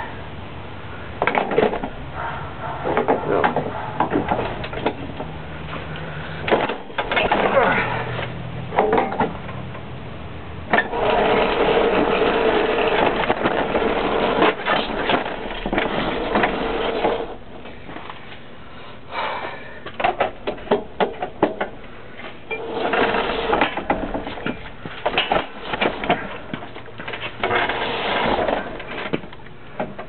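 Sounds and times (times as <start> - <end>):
sharp clicks and knocks: 1.2 - 2.0, 2.9 - 7.5, 19.8 - 27.7.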